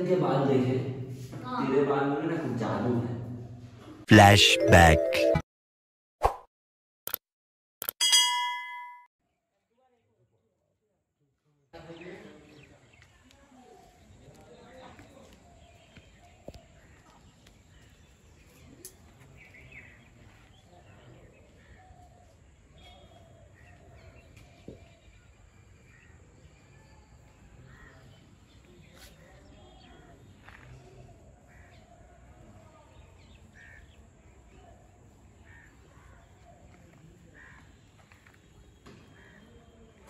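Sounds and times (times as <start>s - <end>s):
crow cawing: 37.4s - 37.7s.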